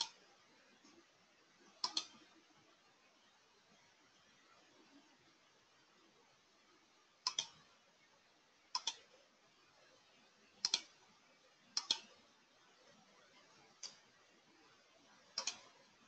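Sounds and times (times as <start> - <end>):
computer mouse double-clicking: 7.3 - 7.5, 8.8 - 9.0, 10.6 - 10.9.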